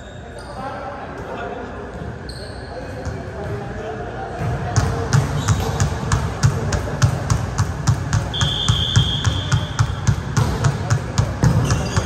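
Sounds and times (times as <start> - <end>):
referee's whistle: 8.3 - 10.0.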